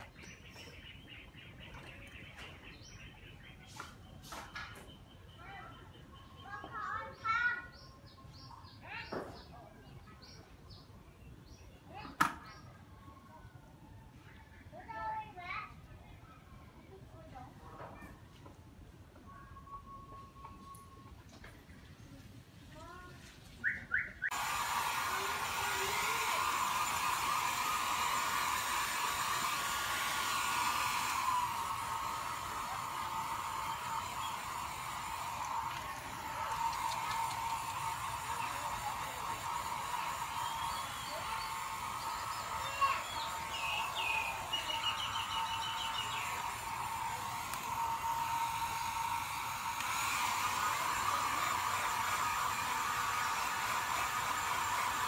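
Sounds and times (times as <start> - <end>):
hair dryer running: 24.3 - 55.0.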